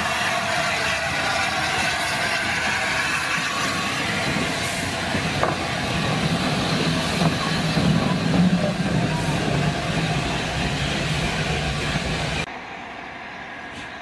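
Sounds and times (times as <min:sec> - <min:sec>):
locomotive wheels clanking: 0:03.2 - 0:12.4.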